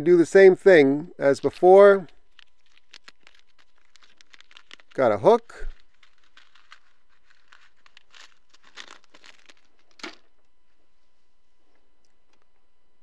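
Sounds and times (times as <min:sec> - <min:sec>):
plastic packet crinkling: 0:01.2 - 0:10.3.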